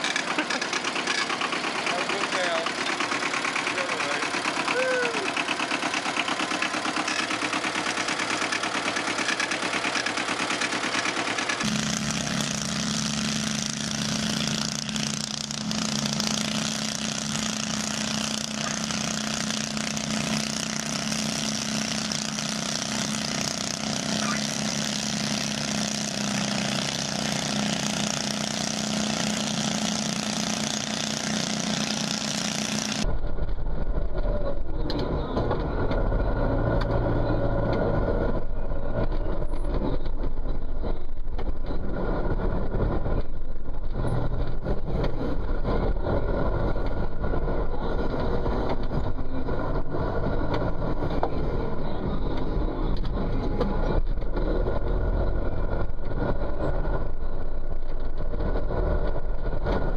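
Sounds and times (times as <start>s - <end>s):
deep tractor engine rumble: 0.0s - 59.9s
small engine running hard: 0.0s - 59.9s.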